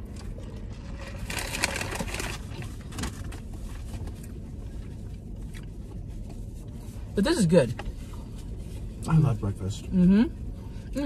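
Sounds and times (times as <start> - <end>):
low rumble inside car: 0.0 - 11.0
paper wrappers rustling: 0.8 - 3.4.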